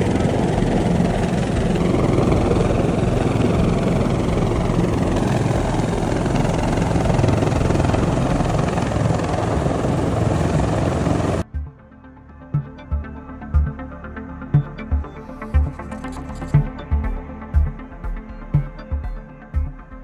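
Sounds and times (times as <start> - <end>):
helicopter rotor noise: 0.0 - 11.4, 15.3 - 17.1.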